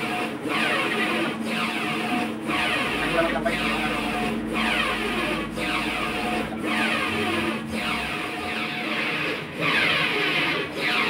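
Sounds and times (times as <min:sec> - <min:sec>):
printer carriage moving: 0:00.0 - 0:10.1.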